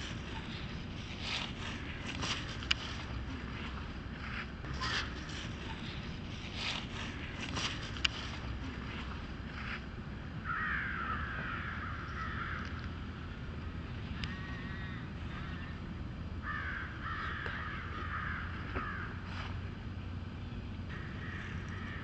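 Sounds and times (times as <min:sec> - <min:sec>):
steady low rumble: 0:00.0 - 0:22.0
crows cawing: 0:10.4 - 0:12.8, 0:14.2 - 0:15.7, 0:16.4 - 0:19.3, 0:20.9 - 0:22.0.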